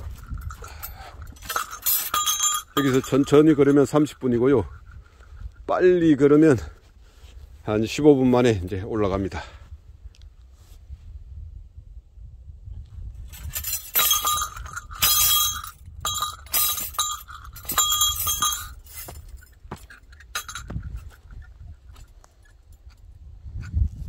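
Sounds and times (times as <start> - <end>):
footsteps on dirt trail: 0.0 - 3.1, 13.7 - 23.1.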